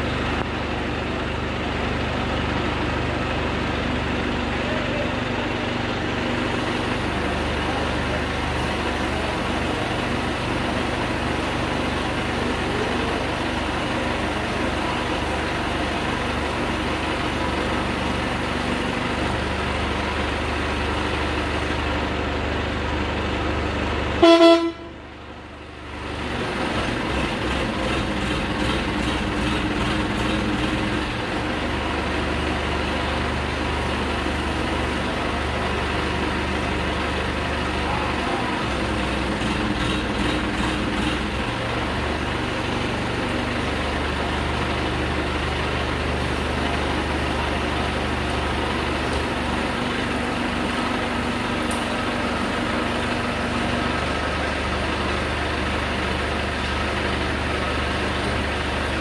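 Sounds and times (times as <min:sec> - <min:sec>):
crane diesel engine running: 0:00.0 - 0:59.0
vehicle horn toot: 0:24.2 - 0:25.0.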